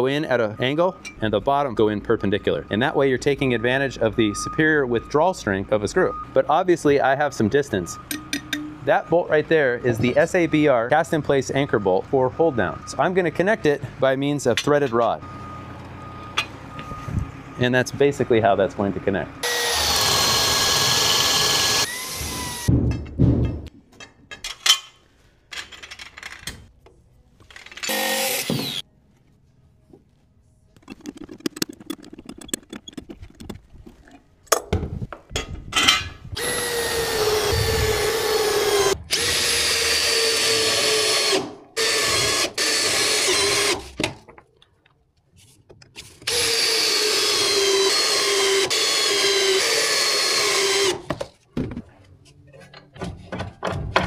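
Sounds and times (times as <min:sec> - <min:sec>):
knocks and rattles of parts: 0:22.6 - 0:28.8, 0:51.0 - 0:54.0.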